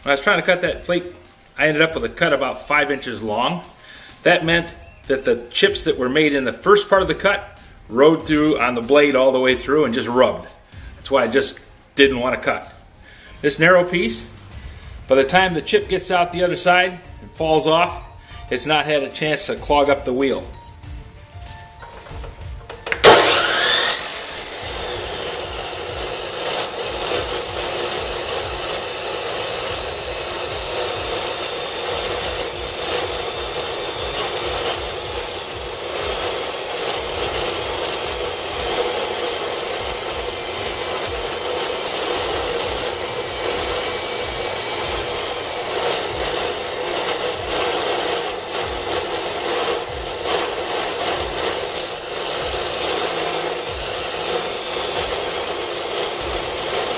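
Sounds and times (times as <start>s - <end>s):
saw wheel grinding through steel: 4.2s - 20.6s, 21.5s - 56.9s
chop saw starting up: 21.8s - 56.9s.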